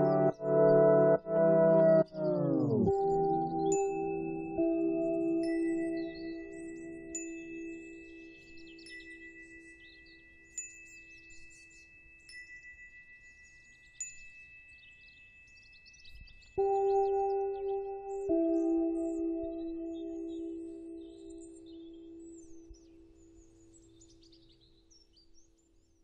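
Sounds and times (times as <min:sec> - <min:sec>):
electronic background music: 0:00.0 - 0:09.0, 0:16.6 - 0:23.7
steady high tones: 0:00.0 - 0:09.8, 0:16.6 - 0:23.9
twinkling chime-like pings: 0:00.0 - 0:25.1.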